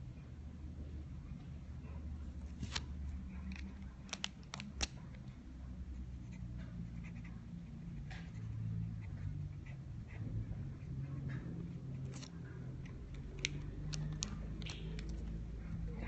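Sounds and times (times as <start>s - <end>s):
steady low hum: 0.0s - 16.0s
pen clicks: 2.6s - 5.2s, 11.9s - 15.4s.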